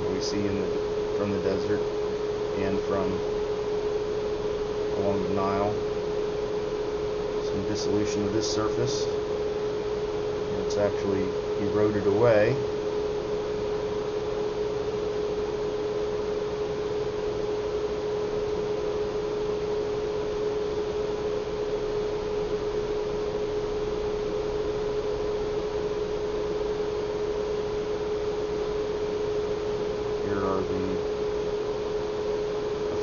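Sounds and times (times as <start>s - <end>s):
steady hum: 0.0s - 33.0s.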